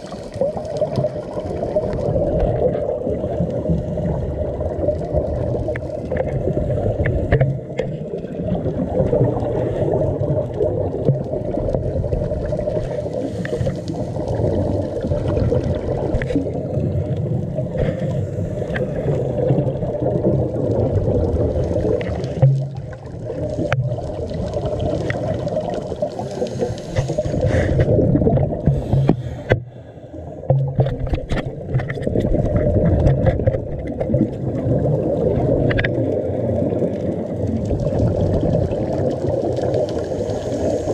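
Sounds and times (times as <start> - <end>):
underwater rumble with gurgling: 0.0 - 40.9.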